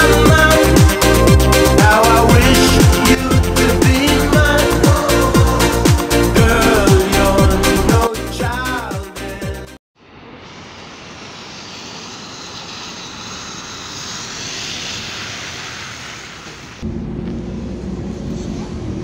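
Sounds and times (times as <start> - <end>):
tyres hissing on wet road: 10.1 - 16.8
bus engine: 10.1 - 19.0
low engine hum inside bus: 16.8 - 19.0.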